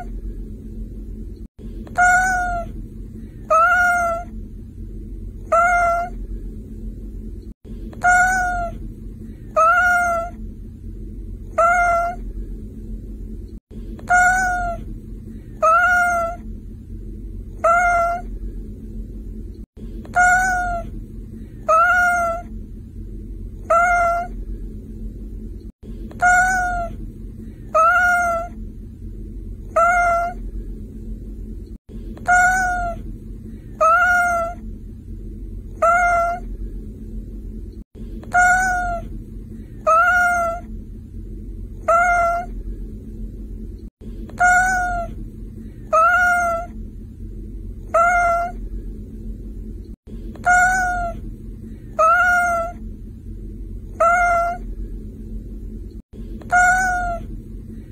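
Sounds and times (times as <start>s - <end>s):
steady low hum: 0.0s - 57.9s
cat meowing: 1.9s - 2.8s, 3.4s - 4.3s, 5.4s - 6.2s, 8.0s - 8.8s, 9.5s - 10.4s, 11.5s - 12.2s, 14.0s - 14.8s, 15.6s - 16.4s, 17.6s - 18.3s, 20.1s - 20.9s, 21.6s - 22.5s, 23.6s - 24.4s, 26.1s - 27.0s, 27.7s - 28.6s, 29.7s - 30.4s, 32.2s - 33.0s, 33.7s - 34.6s, 35.8s - 36.5s, 38.2s - 39.1s, 39.8s - 40.7s, 41.8s - 42.5s, 44.3s - 45.2s, 45.8s - 46.8s, 47.9s - 48.6s, 50.4s - 51.2s, 51.9s - 52.8s, 53.9s - 54.6s, 56.4s - 57.3s.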